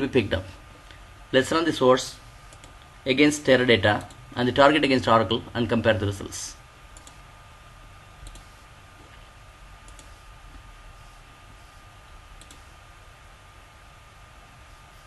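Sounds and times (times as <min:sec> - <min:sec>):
faint steady hum: 0:00.0 - 0:15.0
computer mouse clicks: 0:02.5 - 0:02.9, 0:06.9 - 0:07.2, 0:08.2 - 0:08.6, 0:09.8 - 0:10.2, 0:12.4 - 0:12.7.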